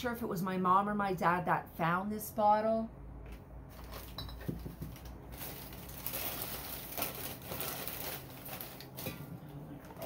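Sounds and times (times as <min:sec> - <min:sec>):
rustling of rummaging: 0:03.7 - 0:10.0.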